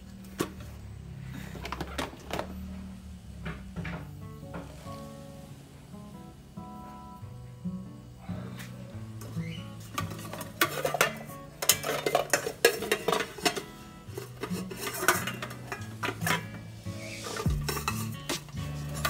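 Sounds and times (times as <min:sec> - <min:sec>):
soft background music: 0:03.8 - 0:19.0
glass lid and metal pot clinking: 0:09.9 - 0:16.6, 0:17.3 - 0:19.0.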